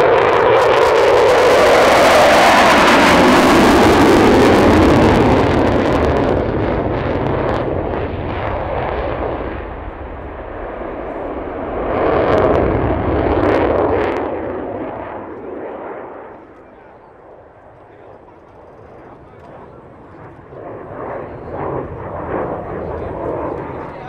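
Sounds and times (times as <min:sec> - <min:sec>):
jet engine roar: 0:00.0 - 0:24.0
jet exhaust crackles: 0:00.1 - 0:24.0.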